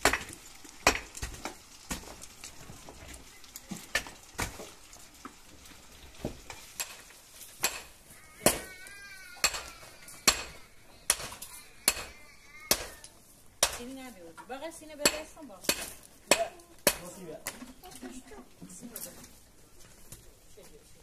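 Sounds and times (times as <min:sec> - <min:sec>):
hard objects clicking and knocking: 0:06.3 - 0:13.8.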